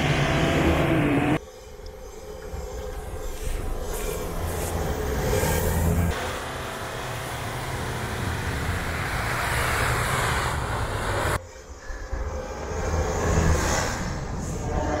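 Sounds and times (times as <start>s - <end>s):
truck engines under load: 0.0s - 11.4s
tyres churning snow: 3.3s - 11.4s.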